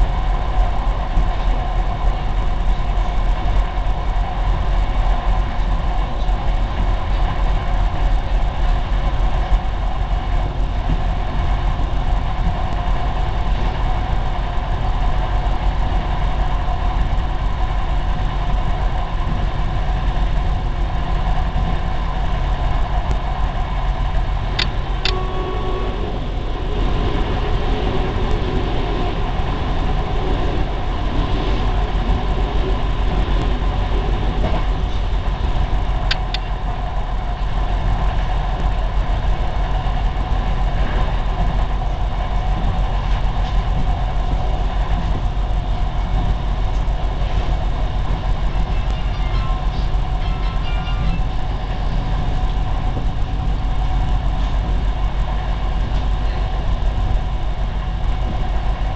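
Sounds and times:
railbus engine and rolling rumble: 0:00.0 - 0:58.9
sharp clicks: 0:24.5 - 0:25.2, 0:36.1 - 0:36.5.

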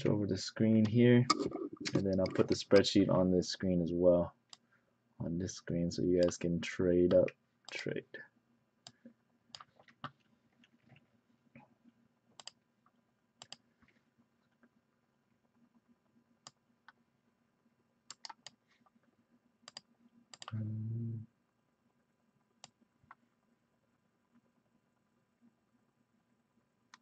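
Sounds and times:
computer mouse clicks: 0:08.8 - 0:11.0, 0:12.4 - 0:12.6, 0:13.4 - 0:13.7, 0:18.1 - 0:18.6, 0:19.7 - 0:20.6
keystrokes: 0:18.1 - 0:18.6, 0:19.7 - 0:20.6.

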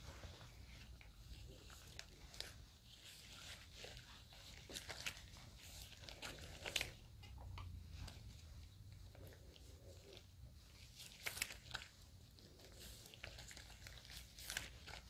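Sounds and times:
brush strokes through wet hair: 0:00.0 - 0:07.0
small crackles: 0:00.0 - 0:15.0.

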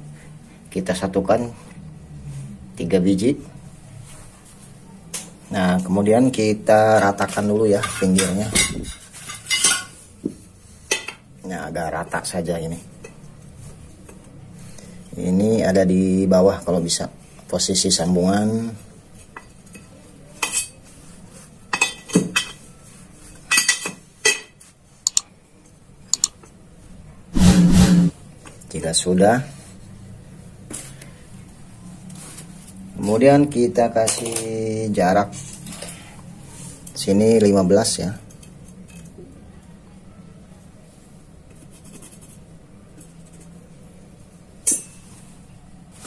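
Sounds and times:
metal scratching and scraping: 0:27.4 - 0:28.2.

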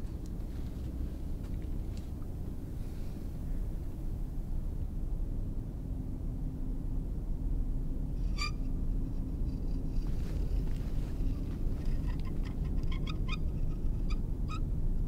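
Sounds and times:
high squeaks or creaks: 0:08.2 - 0:08.7, 0:11.2 - 0:14.6.

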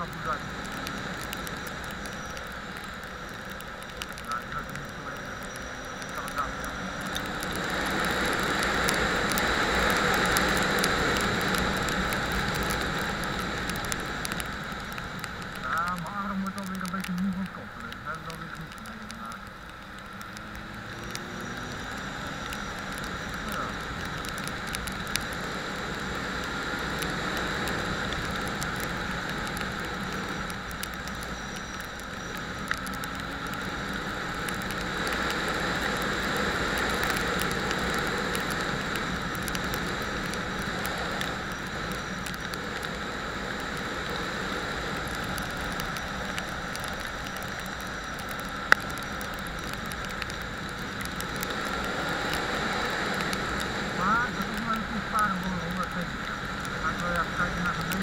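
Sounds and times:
motorcycle engine: 0:20.0 - 0:24.0.

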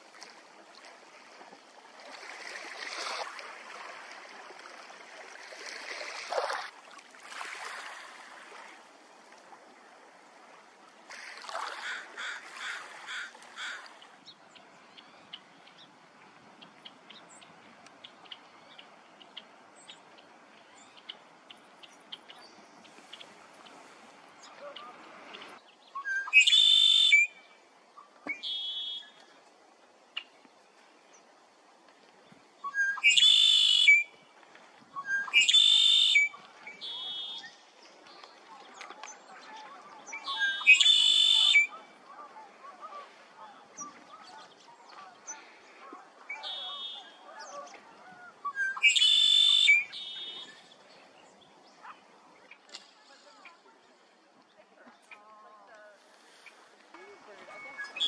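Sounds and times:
bird call: 0:24.5 - 0:29.2, 0:32.6 - 0:34.2, 0:35.0 - 0:37.6, 0:38.2 - 0:51.1, 0:56.3 - 0:58.0
blackbird song with trill: 0:25.4 - 0:27.5, 0:28.3 - 0:29.2, 0:32.6 - 0:34.2, 0:35.0 - 0:39.2, 0:39.9 - 0:41.9, 0:46.3 - 0:52.6, 0:57.5 - 0:58.0.

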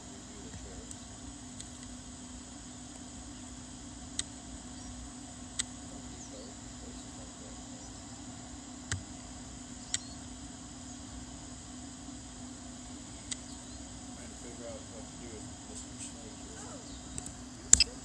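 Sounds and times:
crickets chirring: 0:00.0 - 0:18.0
low steady hum: 0:00.0 - 0:18.0
sharp clicks: 0:09.9 - 0:10.1.

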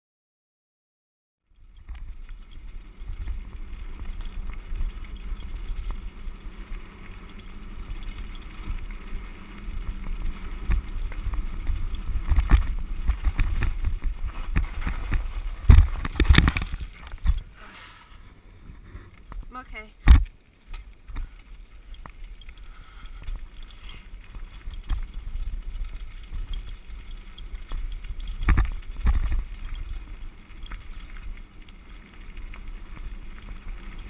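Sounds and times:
tyres crunching on gravel: 0:01.7 - 0:34.0
bike knocks and jolts: 0:07.9 - 0:17.5.

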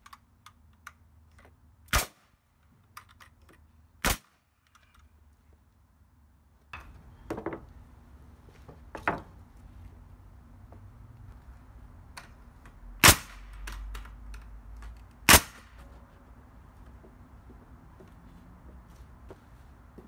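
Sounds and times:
nail gun firing: 0:01.9 - 0:02.3, 0:04.0 - 0:04.4, 0:13.0 - 0:14.0, 0:15.2 - 0:15.8
wooden boards knocking and scraping: 0:06.8 - 0:07.7, 0:08.7 - 0:09.4.

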